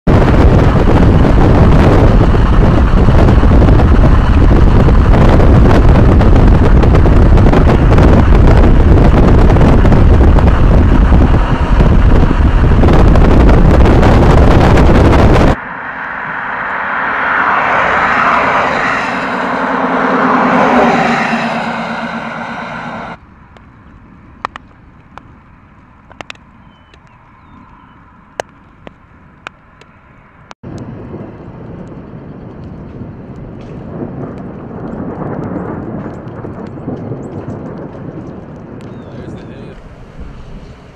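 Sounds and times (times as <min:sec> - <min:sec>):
wind and road noise in car: 0:00.1 - 0:40.9
soft rushing sound: 0:14.7 - 0:23.2.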